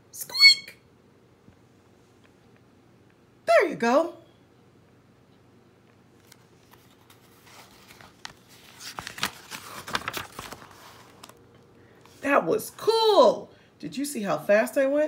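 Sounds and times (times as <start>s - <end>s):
book pages turning: 6.1s - 11.4s.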